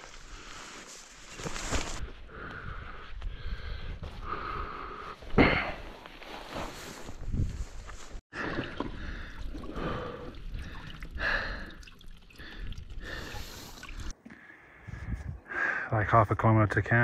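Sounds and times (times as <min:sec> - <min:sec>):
person breathing: 0:02.1 - 0:05.9, 0:08.4 - 0:15.9
water trickling into plastic bottle: 0:08.4 - 0:14.4.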